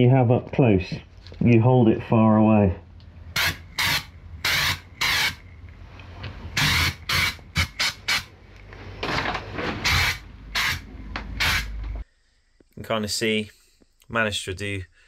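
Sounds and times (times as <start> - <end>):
aerosol can spraying bursts: 9.8 - 10.8, 11.4 - 11.7.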